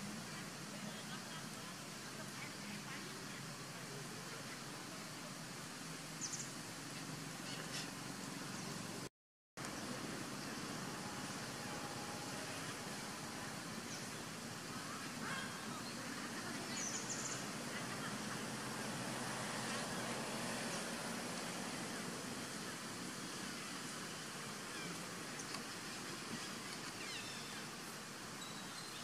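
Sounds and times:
outdoor background hiss: 0:00.0 - 0:29.0.

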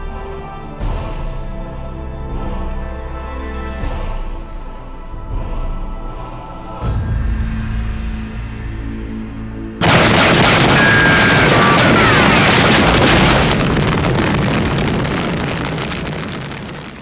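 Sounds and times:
low ominous music: 0:00.0 - 0:10.8
rumbling explosion sound effect: 0:09.8 - 0:17.0.

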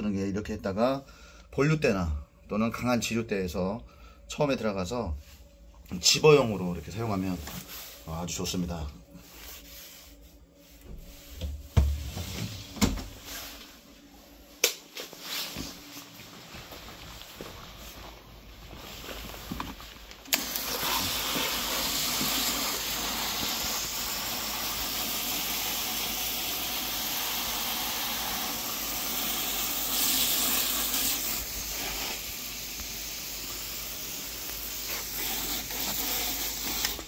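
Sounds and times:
hose spray hissing: 0:20.3 - 0:37.0.

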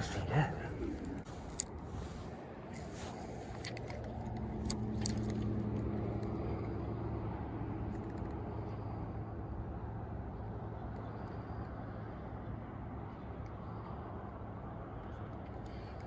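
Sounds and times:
vehicle engine hum: 0:00.0 - 0:16.0
light clicks: 0:03.5 - 0:06.9.

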